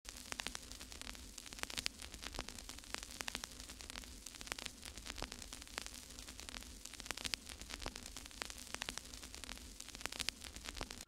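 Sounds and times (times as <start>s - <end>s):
crackle of sharp clicks: 0.1s - 11.0s
steady hiss: 0.1s - 11.0s.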